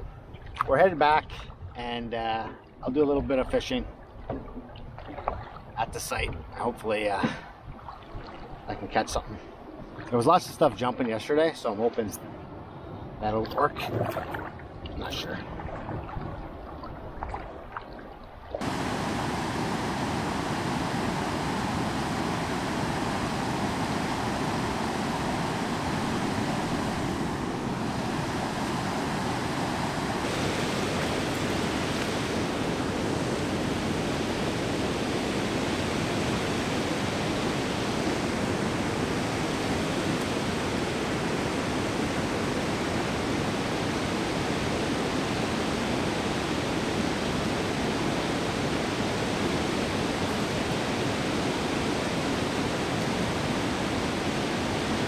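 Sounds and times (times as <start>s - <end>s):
white water rushing: 18.6s - 55.0s.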